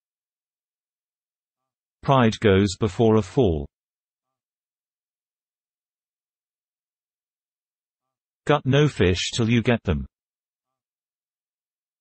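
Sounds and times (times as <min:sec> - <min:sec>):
synthesized voice: 0:02.0 - 0:03.7, 0:08.5 - 0:10.1.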